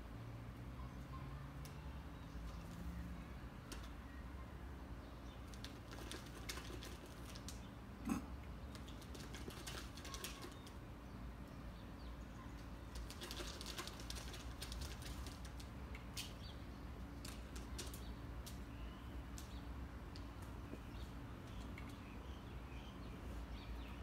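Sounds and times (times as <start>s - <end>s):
twigs and grass rustling: 12.9s - 19.6s.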